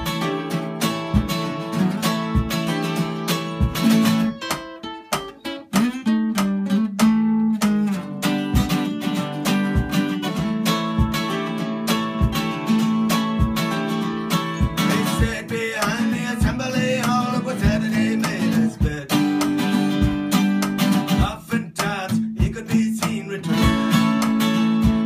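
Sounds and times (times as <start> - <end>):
acoustic guitars playing: 0.0 - 25.0.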